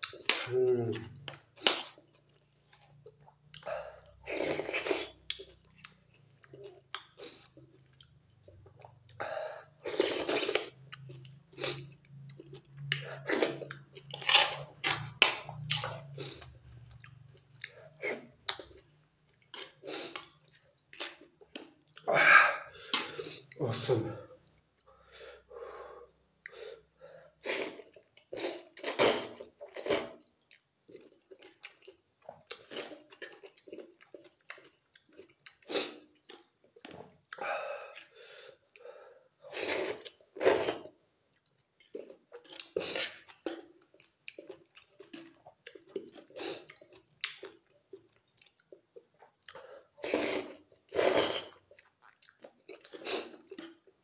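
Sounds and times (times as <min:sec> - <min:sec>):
person chewing: 0:00.0 - 0:23.6, 0:27.4 - 0:54.0
person slurping noodles: 0:03.6 - 0:05.2, 0:09.8 - 0:10.7, 0:22.0 - 0:23.6, 0:27.4 - 0:30.2, 0:39.4 - 0:40.9, 0:50.0 - 0:51.6.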